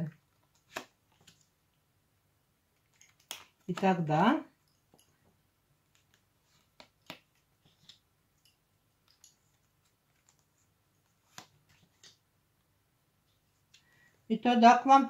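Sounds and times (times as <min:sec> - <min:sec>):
cards being shuffled: 0:00.1 - 0:01.6, 0:02.8 - 0:04.0, 0:05.8 - 0:08.1, 0:09.0 - 0:12.2
sharp card snaps: 0:00.6 - 0:01.4.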